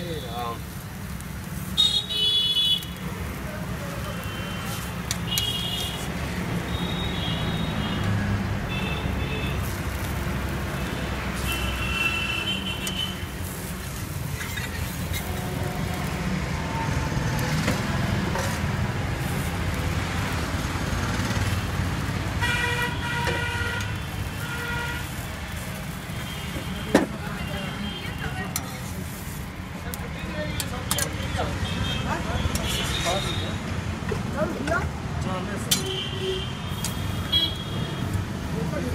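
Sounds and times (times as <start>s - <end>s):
road traffic rumbling: 0.0s - 38.9s
vehicle horns tooting: 1.8s - 3.0s, 4.1s - 9.7s, 10.7s - 13.3s, 22.4s - 25.1s, 26.1s - 28.6s, 31.0s - 33.6s, 35.7s - 38.1s.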